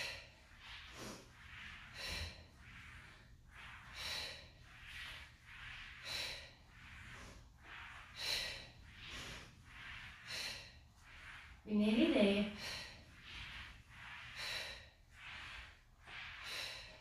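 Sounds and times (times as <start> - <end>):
woman breathing hard: 0.0 - 11.6, 12.5 - 17.0.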